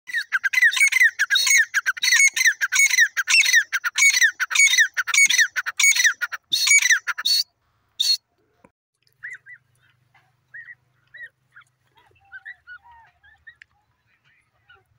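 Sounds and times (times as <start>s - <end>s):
francolin calling shrill phrases: 0.1s - 8.2s.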